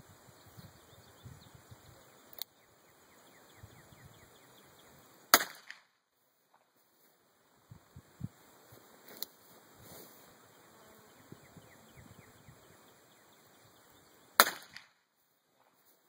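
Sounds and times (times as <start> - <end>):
revolver gunshot: 5.3 - 5.9, 14.4 - 15.0
faint sharp click: 9.1 - 9.4.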